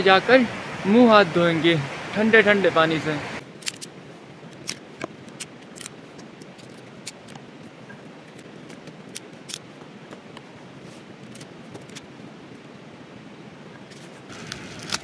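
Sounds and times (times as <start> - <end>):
river water rushing: 0.0 - 15.0
twigs clicking and snapping: 3.5 - 3.9, 4.5 - 7.5, 8.3 - 10.5.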